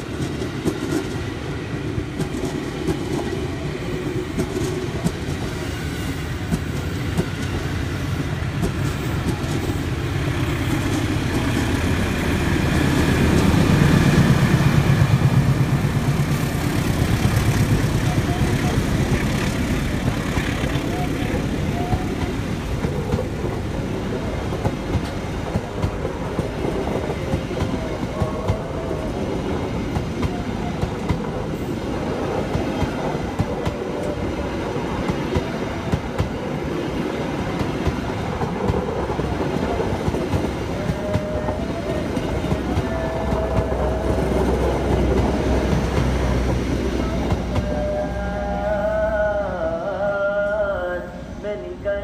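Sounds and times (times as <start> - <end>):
train wheel clicks: 0.0 - 1.3, 2.0 - 3.4, 4.4 - 5.6, 6.5 - 15.0, 16.0 - 28.8
train passing: 0.0 - 52.0
music with singing: 40.6 - 45.8.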